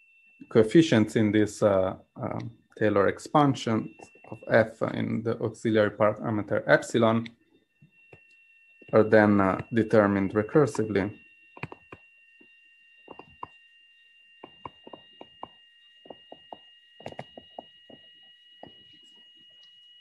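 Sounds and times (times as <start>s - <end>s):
faint high-pitched whine: 0.0s - 20.0s
stylus tapping on tablet screen: 11.6s - 12.0s, 13.1s - 13.6s, 14.4s - 18.7s.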